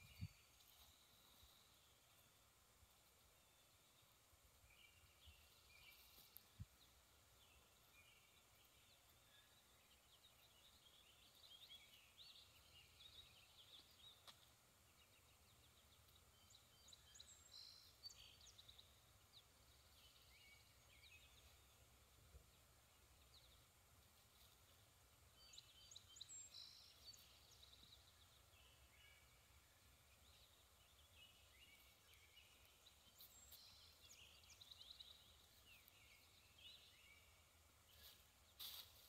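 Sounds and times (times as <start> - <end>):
songbirds chirping: 0.0 - 39.0.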